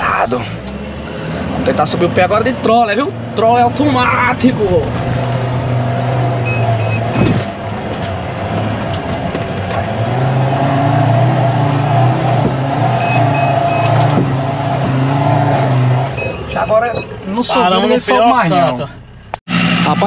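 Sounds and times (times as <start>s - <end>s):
short electronic beeps: 6.4s - 7.4s, 13.0s - 14.0s, 16.2s - 17.1s
engine revving hard: 9.8s - 16.7s.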